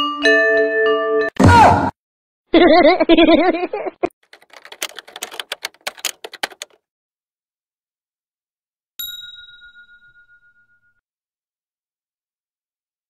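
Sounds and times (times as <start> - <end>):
irregular clicks: 4.3 - 6.8
bell-like ding: 9.0 - 11.0.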